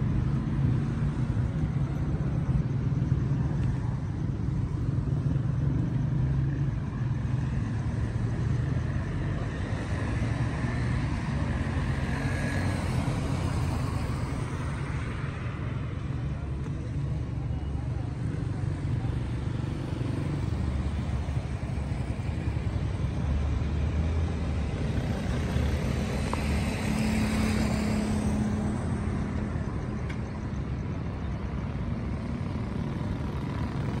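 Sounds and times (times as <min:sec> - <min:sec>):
traffic rumble: 0:00.0 - 0:34.0.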